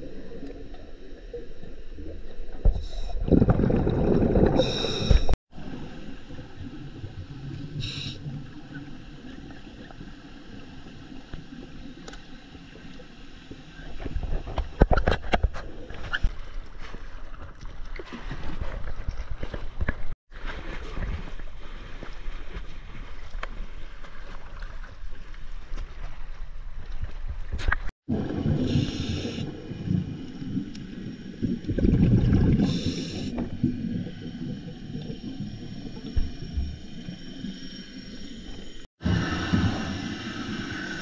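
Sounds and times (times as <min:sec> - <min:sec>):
water gurgling and sloshing: 0:00.0 - 0:41.0
water bubbling: 0:03.0 - 0:05.3, 0:28.1 - 0:37.4.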